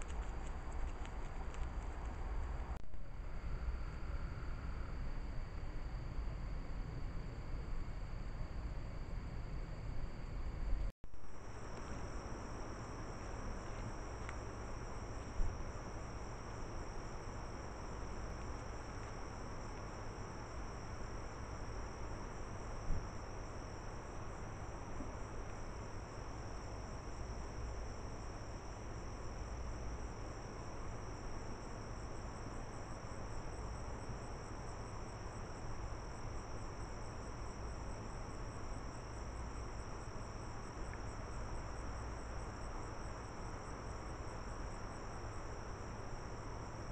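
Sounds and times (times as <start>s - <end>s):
night insects trilling: 11.2s - 46.9s.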